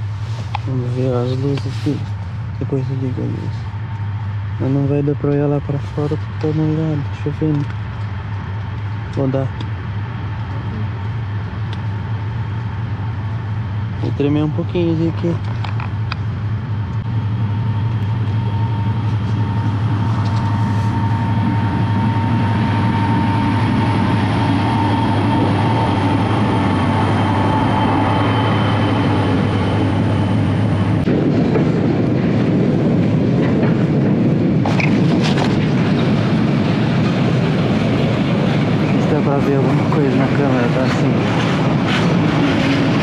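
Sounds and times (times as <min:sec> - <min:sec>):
faint whine: 0:00.0 - 0:43.0
train wheels rumbling on rails: 0:00.0 - 0:43.0
clickety-clack of train wheels: 0:30.9 - 0:43.0.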